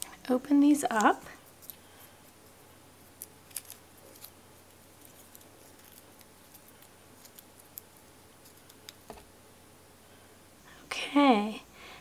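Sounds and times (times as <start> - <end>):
paper crinkling: 0.9 - 9.2.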